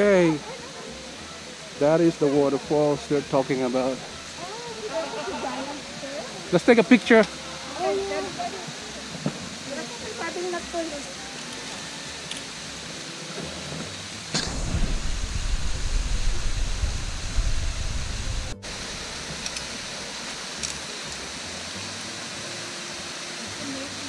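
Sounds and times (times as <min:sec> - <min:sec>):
waterfall rushing: 0:13.9 - 0:24.0
wavering low rumble: 0:14.4 - 0:19.9.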